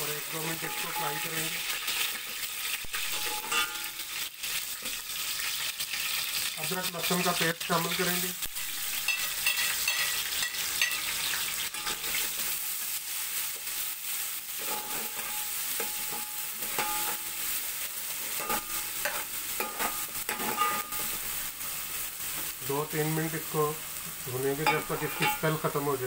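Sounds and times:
paste sizzling in hot oil: 0.0 - 26.0
metal spatula scraping pot: 0.4 - 2.2, 2.9 - 4.0, 14.6 - 17.3, 18.1 - 21.2, 24.6 - 25.7.

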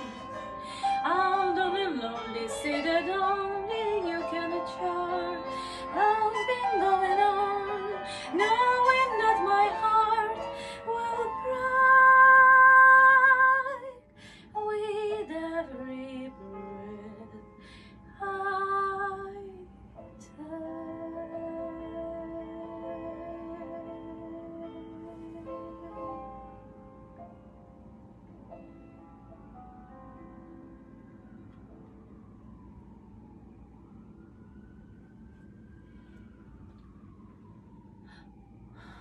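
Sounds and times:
woman singing a slow ballad: 0.0 - 26.4.

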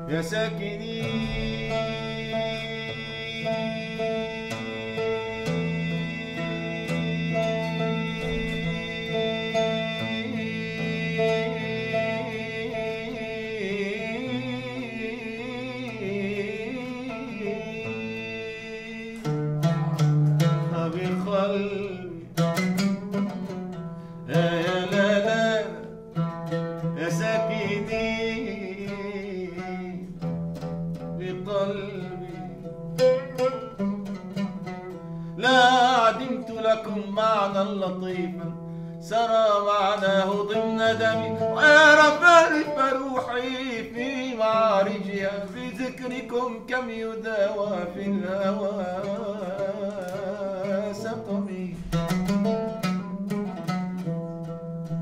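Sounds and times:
plucked oud: 0.0 - 55.0
man singing ornamented vowels: 0.1 - 19.3.

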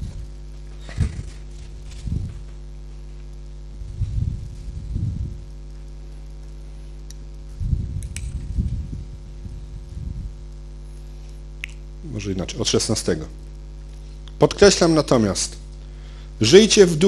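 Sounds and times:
muffled thumps and rumbling: 0.0 - 5.5, 7.5 - 10.4
electrical mains hum: 0.0 - 17.0.

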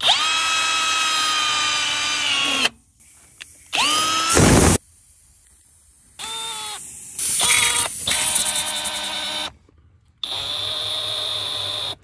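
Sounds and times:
cordless drill running: 0.0 - 2.7, 3.7 - 4.8, 6.2 - 6.8, 7.4 - 9.5, 10.2 - 12.0.

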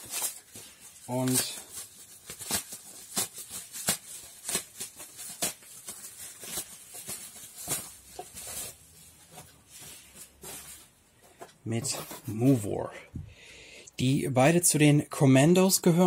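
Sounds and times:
plastic packaging clicks and crinkles: 0.0 - 11.6.

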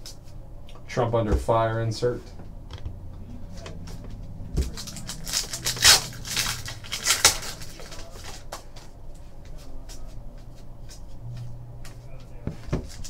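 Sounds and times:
card pack wrapper crinkling: 4.6 - 8.6.

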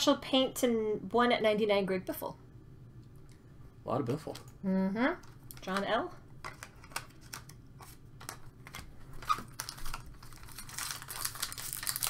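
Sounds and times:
cards being shuffled: 6.4 - 12.0
foil wrapper crinkling: 6.5 - 12.0.

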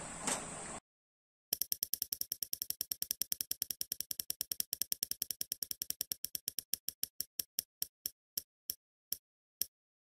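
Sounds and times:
prize wheel clicking: 1.6 - 7.7.

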